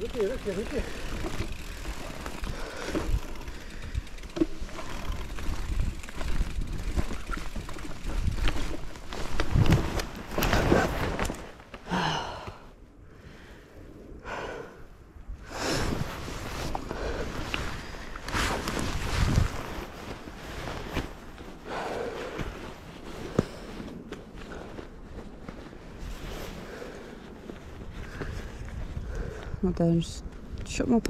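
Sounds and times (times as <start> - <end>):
bike parts rattling: 0.0 - 11.7
bike tyres rumbling on trail: 0.0 - 13.6, 15.4 - 30.8
rider breathing heavily: 0.6 - 9.2, 11.8 - 18.8, 20.6 - 29.6
wind on microphone: 15.1 - 20.9, 27.5 - 30.9.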